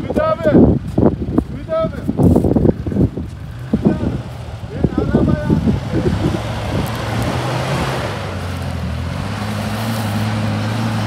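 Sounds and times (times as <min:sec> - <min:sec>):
car engine running under load: 0:00.0 - 0:11.0
steady rushing noise: 0:00.2 - 0:11.0.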